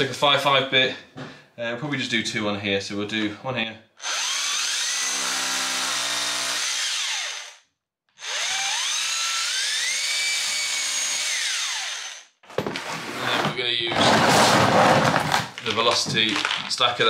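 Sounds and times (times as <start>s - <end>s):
hammer drill boring into wall: 4.0s - 7.6s, 8.2s - 12.9s.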